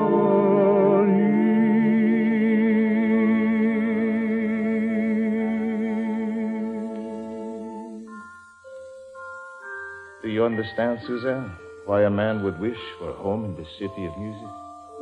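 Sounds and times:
person singing with vibrato: 0.0 - 8.4
sustained orchestral chord: 0.0 - 9.4.

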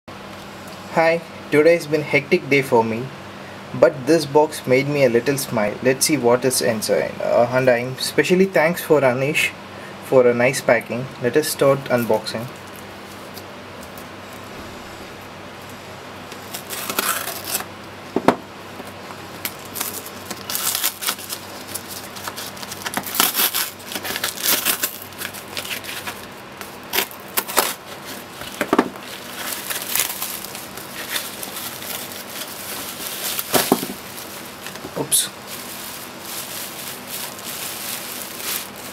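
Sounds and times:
bubble wrap crinkling: 16.3 - 18.0, 18.7 - 38.9
knife slitting packing tape: 16.4 - 17.7, 19.4 - 34.0.

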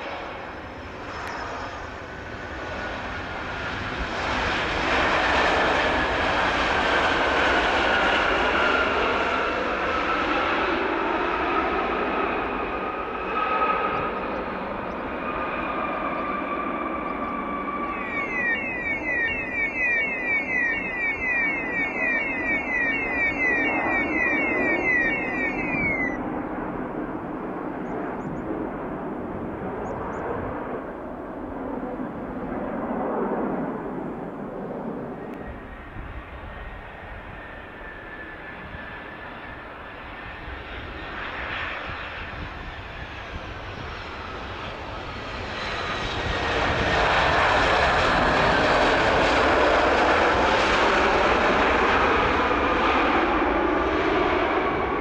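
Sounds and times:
jet engines rushing: 0.0 - 32.5, 33.5 - 55.0
high falling chirps: 17.8 - 26.2.

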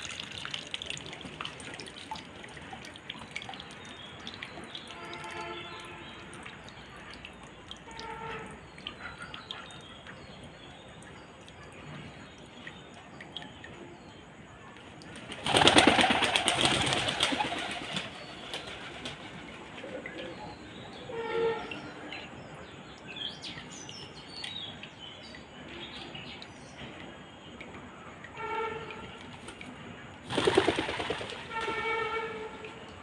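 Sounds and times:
pigeon wings flapping: 15.2 - 19.3, 30.3 - 31.8.

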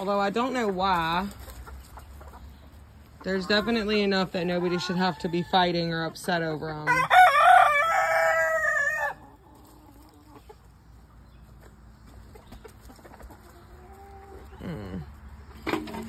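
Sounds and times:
rooster crowing: 6.9 - 9.2.

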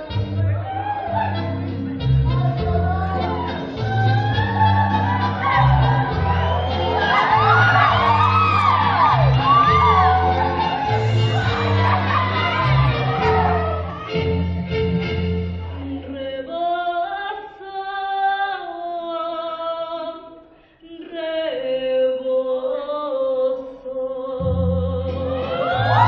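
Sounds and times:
low instrumental backing: 0.0 - 16.2
woman singing into a microphone: 1.2 - 3.6, 15.7 - 26.0.

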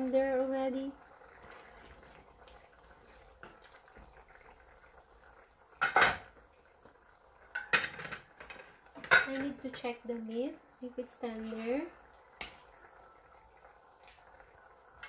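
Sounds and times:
pot bubbling: 0.0 - 15.0
metal cookware clattering: 5.8 - 6.3, 7.5 - 9.9.

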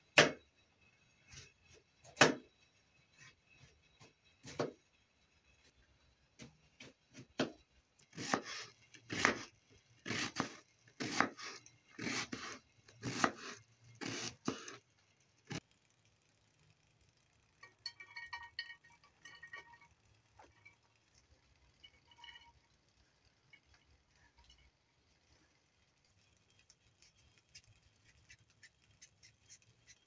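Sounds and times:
knife chopping onion on board: 8.2 - 14.8
glass dish clinking: 17.6 - 19.9, 21.8 - 22.6.

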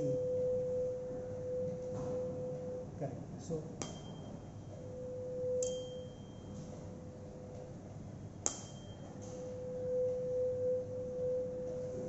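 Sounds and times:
tuning fork strike: 0.0 - 3.1, 3.8 - 6.7, 8.4 - 12.0
resonator hum: 0.0 - 12.0.

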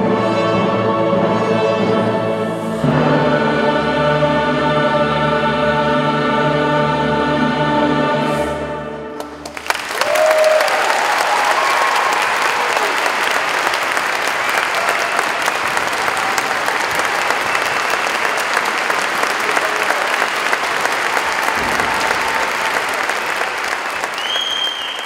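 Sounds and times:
large audience applauding: 9.2 - 25.0.

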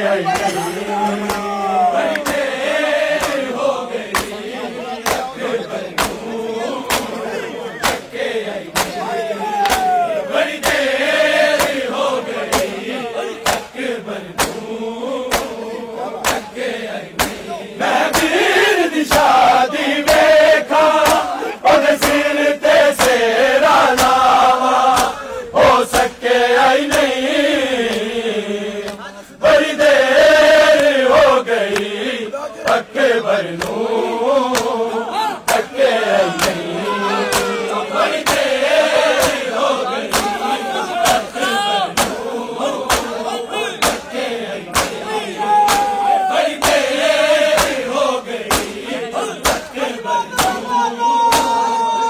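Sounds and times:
men chanting together: 0.0 - 52.0
hands slapping bare chests: 0.3 - 0.6, 1.2 - 12.8, 13.4 - 15.6, 16.2 - 23.2, 23.8 - 25.2, 26.8 - 27.2, 30.7 - 31.0, 33.5 - 33.8, 34.5 - 34.8, 35.4 - 36.7, 37.3 - 40.4, 41.0 - 43.2, 43.8 - 49.8, 50.4 - 50.6, 51.3 - 51.6.

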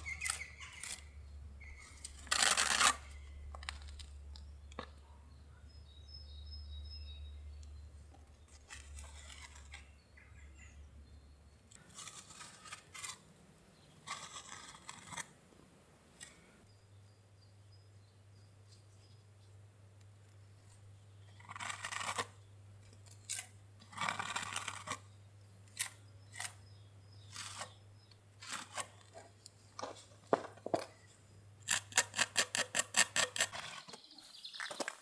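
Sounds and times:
metal putty knife scraping stone: 8.5 - 9.9, 31.6 - 34.0.

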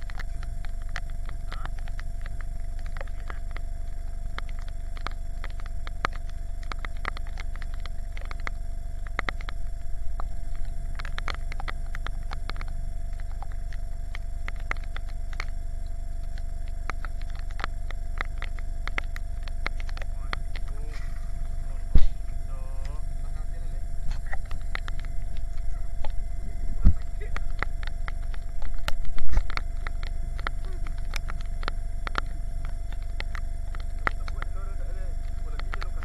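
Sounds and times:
rain drops tapping on lake: 0.0 - 20.9.

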